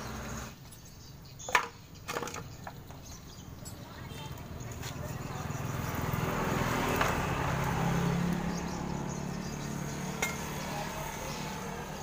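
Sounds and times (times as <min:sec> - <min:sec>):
vehicle engine passing by: 0:00.0 - 0:00.6, 0:04.1 - 0:12.0.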